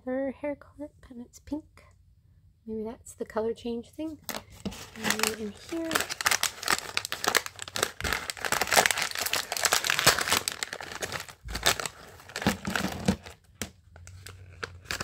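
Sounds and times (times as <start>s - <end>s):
plastic bag crinkling: 4.3s - 15.0s.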